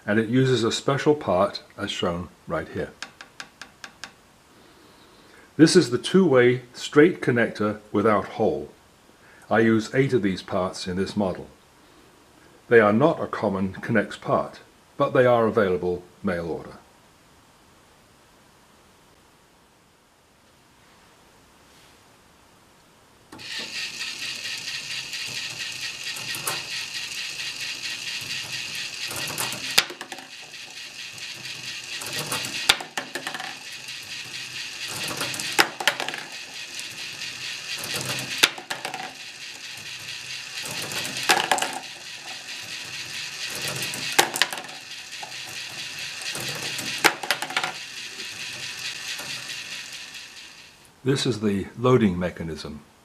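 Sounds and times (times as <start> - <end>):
motor-driven plastic gears whirring: 23.4 - 50.9
marble clacking into plastic tub: 28.7 - 30.8, 31.4 - 39.6, 40.6 - 50.2.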